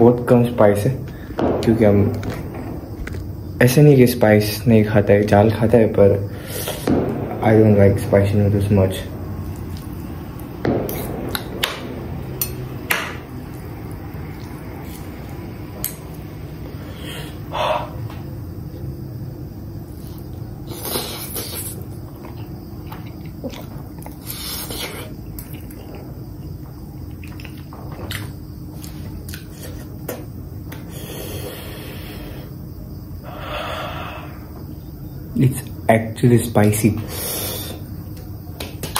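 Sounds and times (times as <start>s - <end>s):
person chewing: 14.3s - 16.0s, 20.0s - 30.2s.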